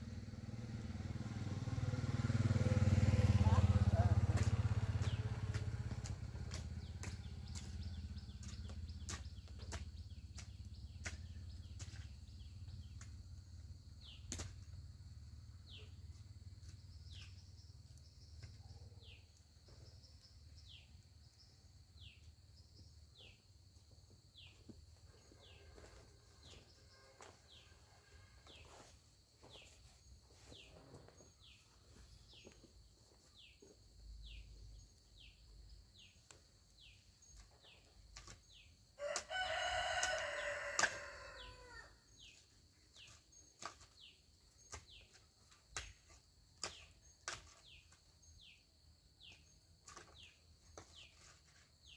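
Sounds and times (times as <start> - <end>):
motorcycle engine passing: 0.0 - 13.0, 29.6 - 32.6
hoe striking soil: 4.2 - 12.2, 37.2 - 41.6, 42.3 - 48.4, 49.3 - 51.9.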